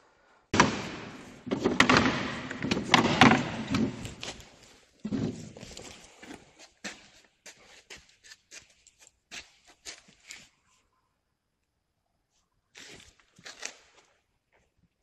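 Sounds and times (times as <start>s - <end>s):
close knocks and thuds: 0.6s - 4.3s.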